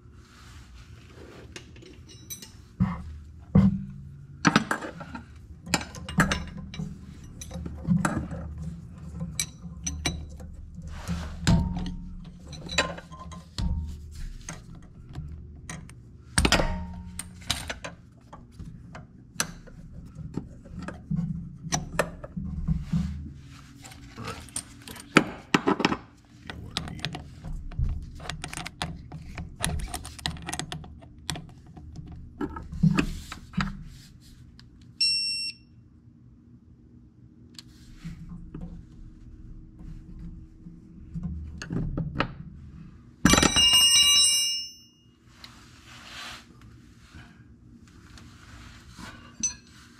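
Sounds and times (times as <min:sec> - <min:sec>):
low steady hum: 0:00.0 - 0:49.9
metal tool clinks and knocks: 0:01.8 - 0:02.6, 0:43.3 - 0:45.0.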